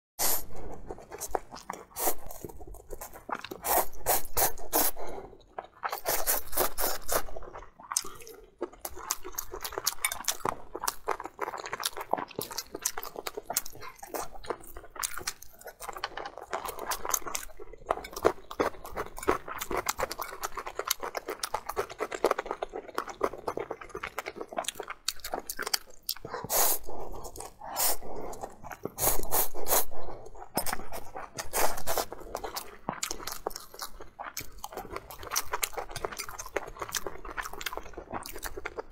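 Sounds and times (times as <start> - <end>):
slurping noodles: 0.2 - 7.4, 26.2 - 32.6
wet chewing: 0.6 - 38.9.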